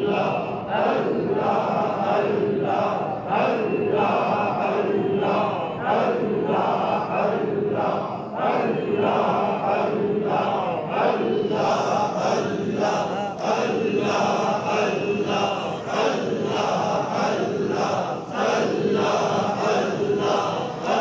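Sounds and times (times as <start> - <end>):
men chanting in unison: 0.0 - 21.0.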